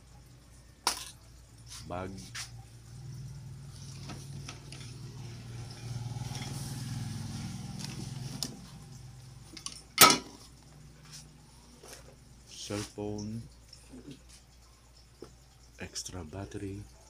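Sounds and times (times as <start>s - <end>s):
low engine hum: 2.5s - 9.6s.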